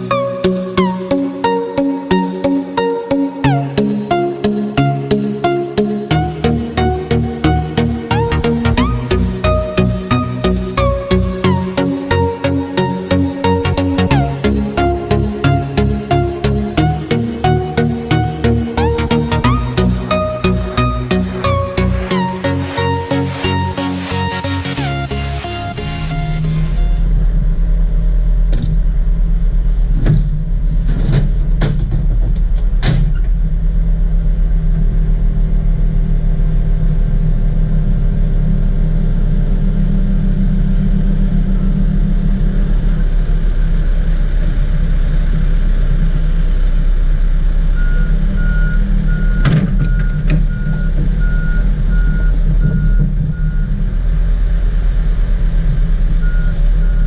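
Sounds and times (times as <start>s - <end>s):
excavator diesel engine running: 0.0s - 57.0s.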